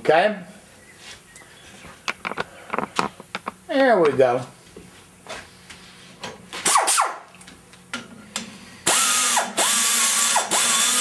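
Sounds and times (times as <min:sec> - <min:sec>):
pneumatic die grinder whining: 0:08.8 - 0:11.0.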